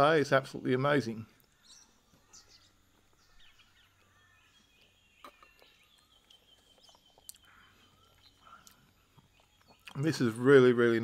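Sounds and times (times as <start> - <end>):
faint bird chirps: 0.0 - 11.0.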